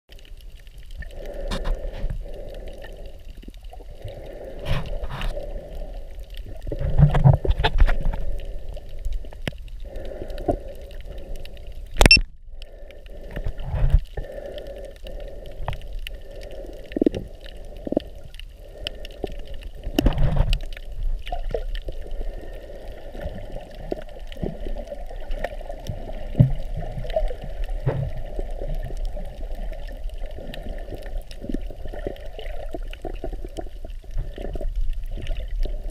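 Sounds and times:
underwater water sloshing: 0.1 - 35.9
sharp click: 12.0 - 12.3.

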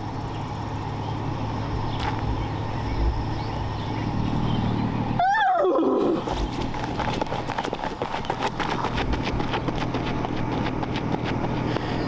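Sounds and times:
low engine-like hum: 0.0 - 12.0
horse whinny: 5.2 - 6.3.

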